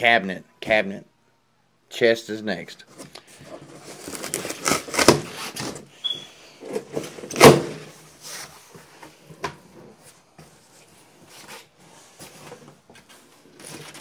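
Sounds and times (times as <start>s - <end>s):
brief squeak: 6.0s - 6.4s.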